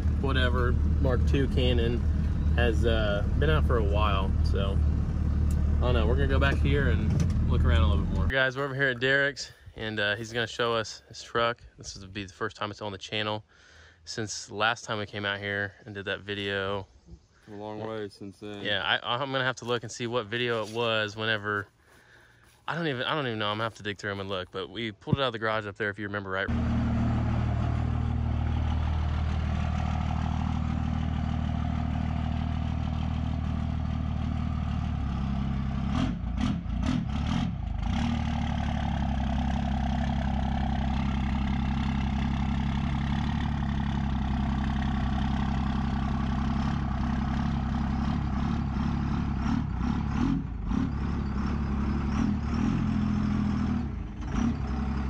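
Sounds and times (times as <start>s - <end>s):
diesel engine idling: 0.0s - 8.9s, 26.5s - 55.0s.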